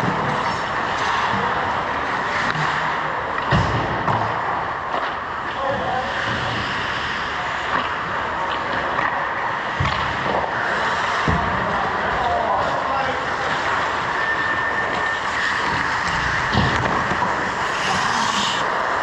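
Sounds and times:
indoor ice rink noise: 0:00.0 - 0:19.0.

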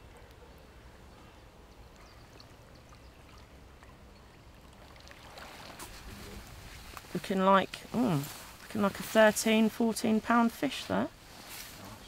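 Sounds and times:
faint water sounds: 0:00.0 - 0:12.0
wet net rustling and crinkling: 0:04.6 - 0:12.0.

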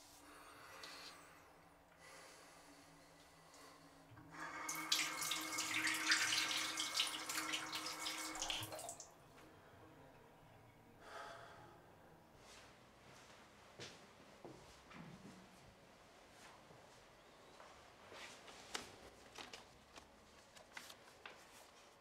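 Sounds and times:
tap water running into sink: 0:04.4 - 0:09.0.

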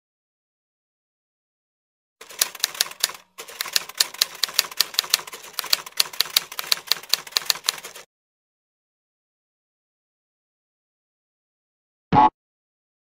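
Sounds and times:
rapid typing clatter: 0:02.2 - 0:08.1.

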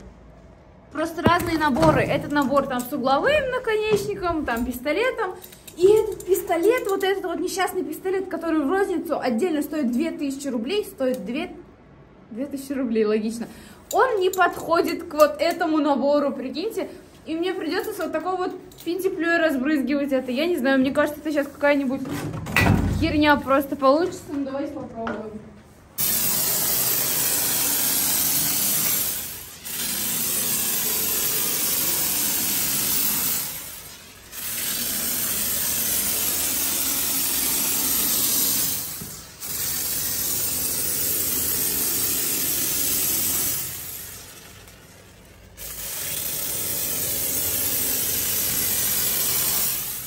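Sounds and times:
spray foam hissing from nozzle: 0:26.0 - 0:44.0, 0:45.6 - 0:50.0.

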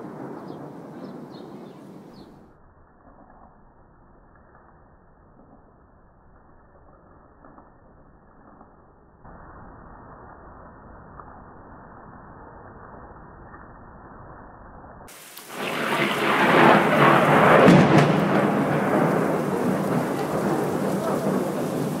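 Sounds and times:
thunder rumbling: 0:00.0 - 0:02.6, 0:15.1 - 0:22.0
faint hiss: 0:15.1 - 0:22.0.

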